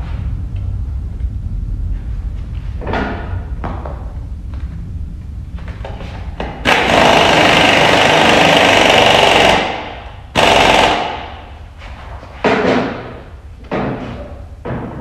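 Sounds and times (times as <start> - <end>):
pneumatic impact wrench hammering: 6.6 - 11.5.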